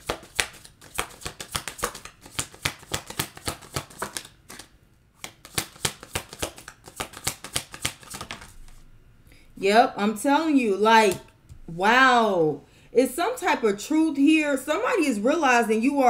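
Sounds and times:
cards being shuffled by hand: 0.0 - 8.9.

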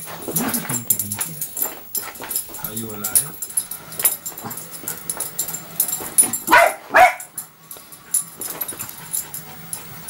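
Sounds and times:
small dog barking: 6.5 - 7.4.

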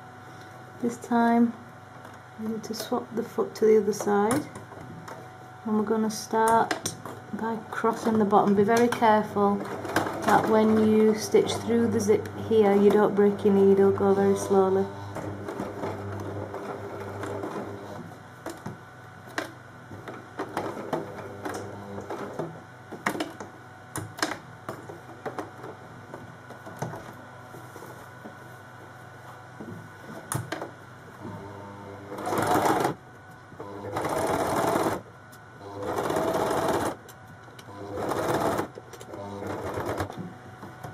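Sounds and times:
sewing machine motor hum: 6.5 - 18.6, 19.2 - 23.4, 31.1 - 33.0, 33.6 - 35.0, 35.6 - 40.9.

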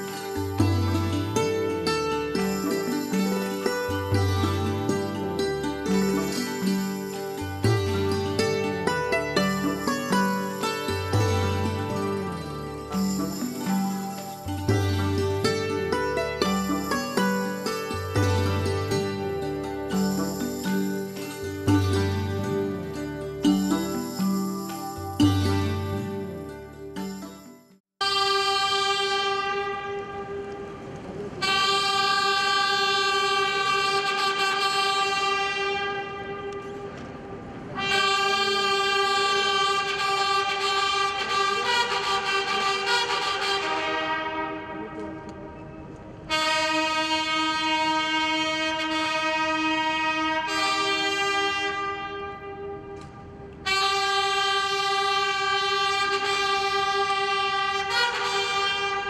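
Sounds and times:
brass fanfare with trumpets: 28.0 - 59.0.

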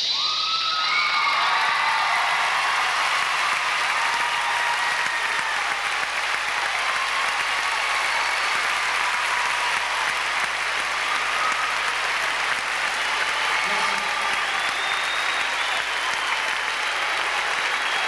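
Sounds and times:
audience applauding: 0.2 - 18.0.

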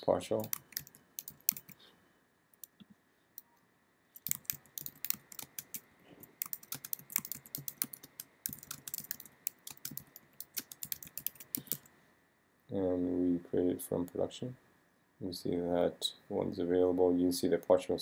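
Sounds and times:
keyboard typing: 0.4 - 1.8, 4.2 - 11.9.

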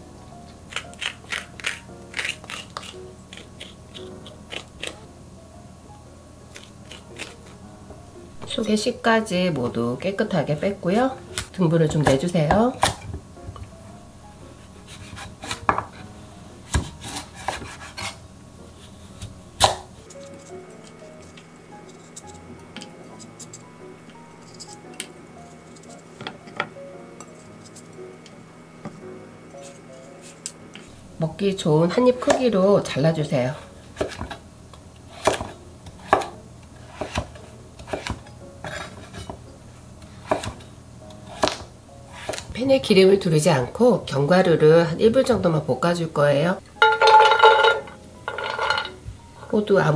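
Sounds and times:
knife cutting pumpkin rind: 0.6 - 5.0, 6.5 - 7.6, 14.6 - 16.1, 16.7 - 18.2, 33.9 - 34.4, 35.1 - 39.4, 40.2 - 42.6.

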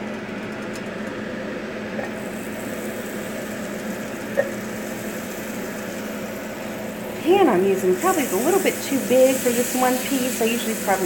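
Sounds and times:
steady low hum: 0.0 - 11.0
butter sizzling in frying pan: 2.2 - 11.0.

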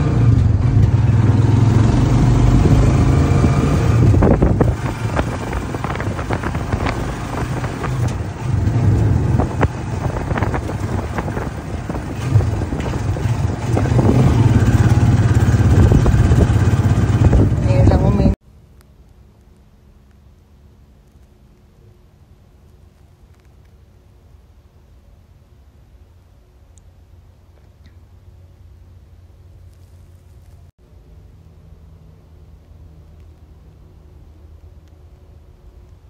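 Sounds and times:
small motor vehicle engine droning: 0.0 - 18.4
vehicle body rattling: 4.0 - 17.9.

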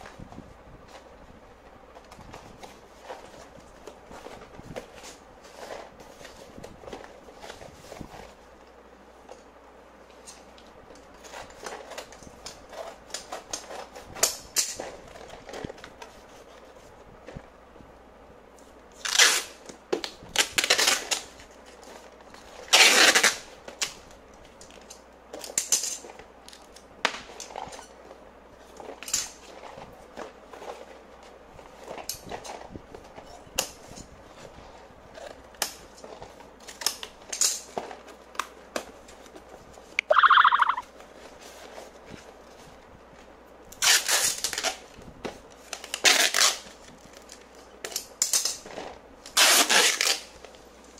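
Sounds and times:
cardboard folding and rustling: 0.0 - 9.3, 11.1 - 17.5, 18.6 - 24.1, 24.7 - 39.9, 41.0 - 47.6, 48.5 - 50.9
packing tape pulled off roll: 10.2 - 17.4, 18.9 - 33.8, 34.4 - 39.5, 43.7 - 50.9.

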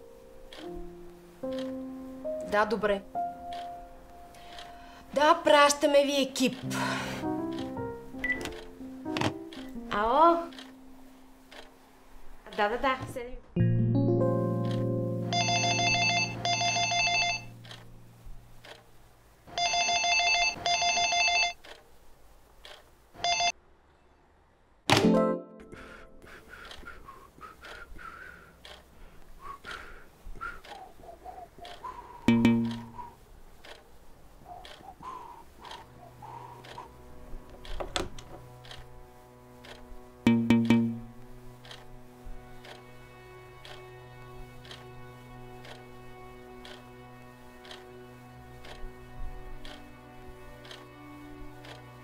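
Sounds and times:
soft ticking: 0.0 - 11.9, 26.6 - 39.0, 39.6 - 41.9, 45.6 - 46.0, 46.6 - 46.9, 47.6 - 47.9, 48.6 - 52.0
telephone ringing electronically: 15.3 - 17.8, 19.5 - 21.6, 23.2 - 23.6
held low notes: 31.4 - 33.2, 35.0 - 43.2.

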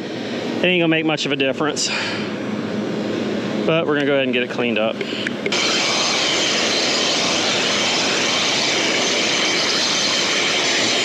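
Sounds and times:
cleaning jet hissing: 4.9 - 11.0.

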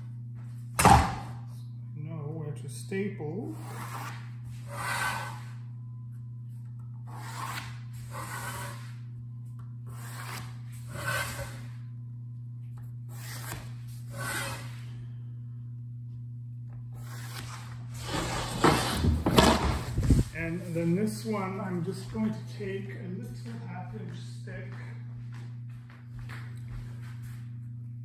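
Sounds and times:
steady low hum: 0.0 - 28.0
pencil scratching on plywood: 7.1 - 9.0, 9.9 - 11.7.

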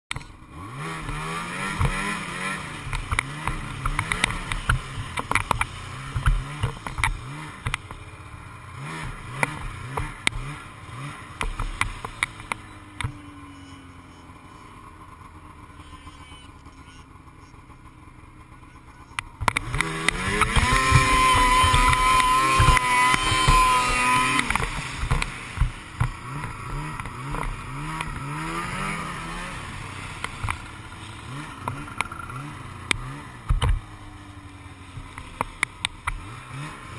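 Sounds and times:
snowmobile engine revving: 0.2 - 36.9
knocks and clatter: 19.4 - 26.2.

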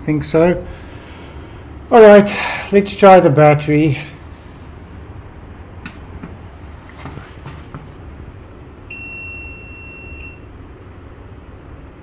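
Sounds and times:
high-pitched electronic beep: 8.9 - 10.5.

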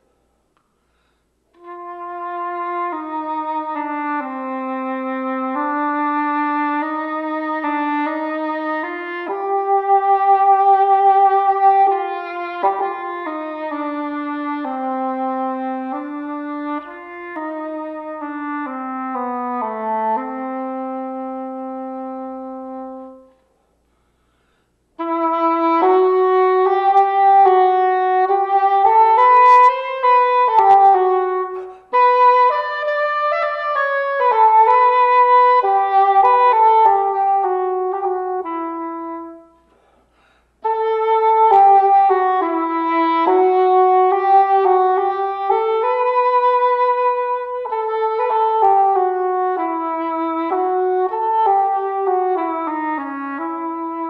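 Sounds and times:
player breathing: 0.6 - 1.5, 23.7 - 24.9, 39.6 - 40.6
cor anglais melody: 1.5 - 23.4, 25.0 - 39.7, 40.6 - 54.0.

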